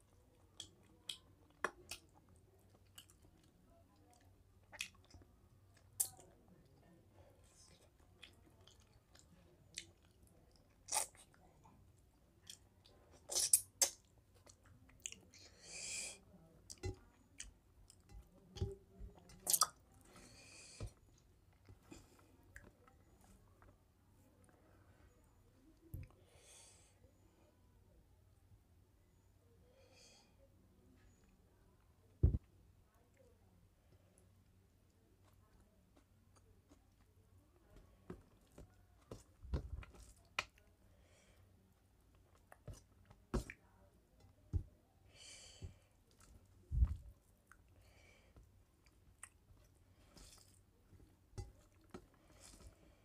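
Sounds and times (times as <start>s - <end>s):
chewing and lip-smacking: 0.4s - 6.3s, 7.7s - 11.4s, 12.4s - 15.3s, 48.8s - 50.6s
mouth chewing: 0.4s - 6.4s, 45.7s - 53.0s
fingers squishing rice: 35.1s - 53.0s.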